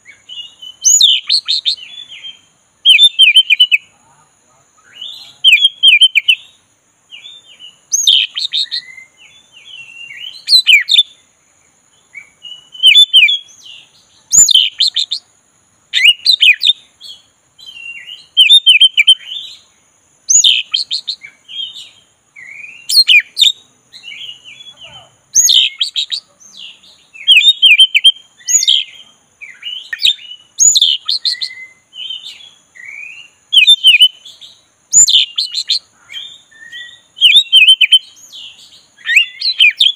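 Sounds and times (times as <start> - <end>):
magpie-robin singing: 0.0 - 3.9, 4.8 - 11.2, 12.0 - 15.3, 16.0 - 19.7, 20.3 - 39.9.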